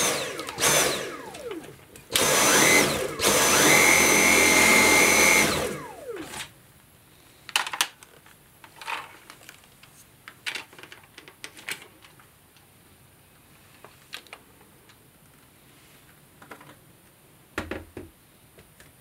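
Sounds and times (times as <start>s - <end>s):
vacuum cleaner whine: 0.0s - 6.5s.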